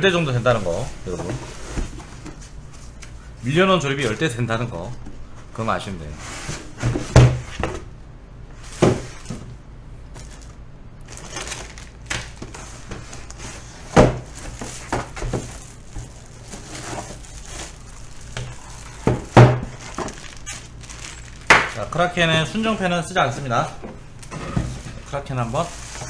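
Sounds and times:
cardboard packaging handled: 0:10.1 - 0:22.6
packaging rustling: 0:10.1 - 0:22.8, 0:24.2 - 0:26.0.

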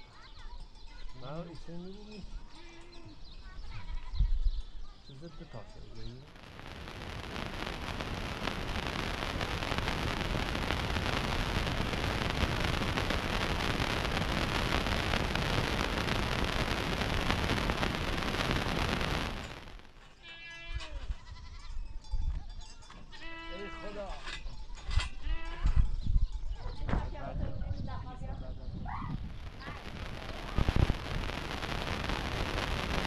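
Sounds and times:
sheep or goats bleating: 0:20.2 - 0:21.8, 0:23.1 - 0:25.9.

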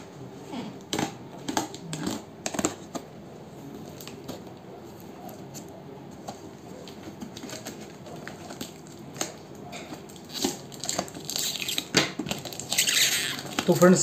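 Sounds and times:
fingers scratching packing tape: 0:10.2 - 0:13.8
tape peeling and tearing: 0:10.2 - 0:13.8.

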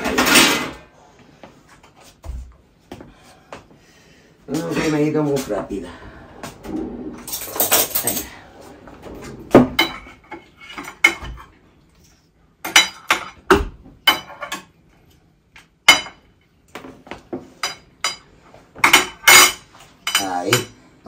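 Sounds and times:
cutlery clinking on china plates: 0:17.6 - 0:20.8.

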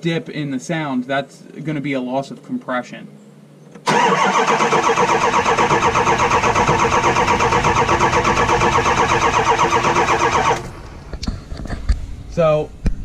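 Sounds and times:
diesel engine cranking on starter: 0:03.8 - 0:11.1.

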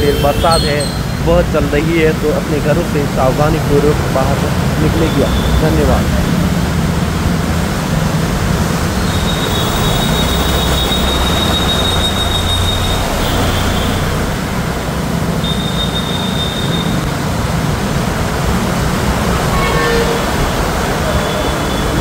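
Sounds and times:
high-pitched squeal: 0:00.0 - 0:06.4, 0:08.9 - 0:14.4
vehicle engines running: 0:00.0 - 0:22.0.

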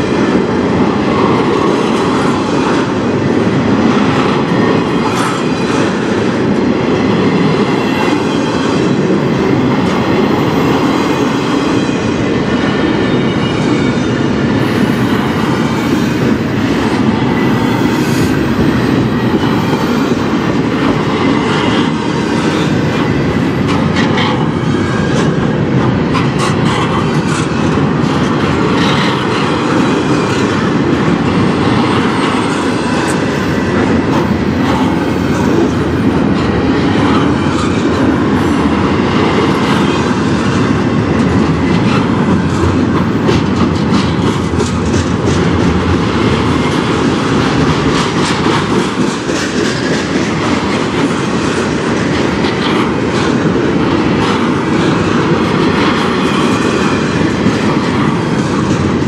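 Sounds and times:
freight train rumbling past: 0:00.0 - 0:59.0
wheels clicking on rails: 0:14.6 - 0:59.0.

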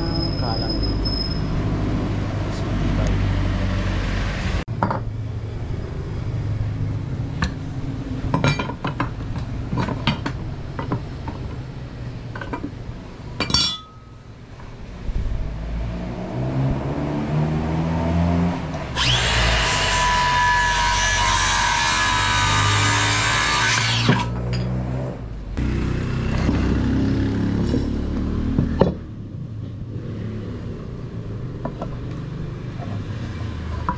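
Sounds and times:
knocks and clicks of wood and tools: 0:08.3 - 0:11.6, 0:28.6 - 0:29.0
circular saw cutting wood: 0:18.9 - 0:24.4.

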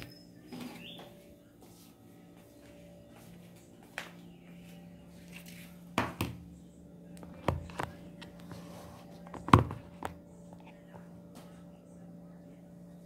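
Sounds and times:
faint steady hum: 0:00.0 - 0:13.0
phone being handled knocks: 0:09.3 - 0:10.2.

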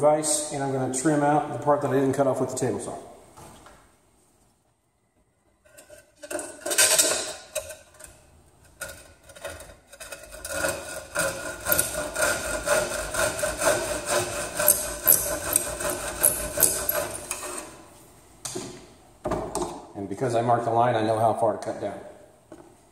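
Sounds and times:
handsaw cutting plywood: 0:09.9 - 0:17.8.

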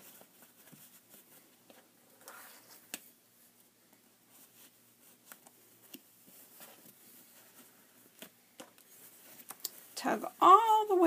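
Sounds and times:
fabric rustling and clicking: 0:04.0 - 0:11.0.

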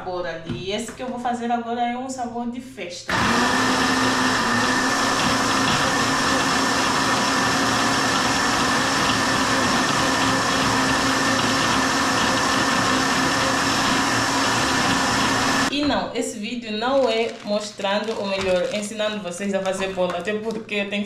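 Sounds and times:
blender running: 0:03.1 - 0:15.7.

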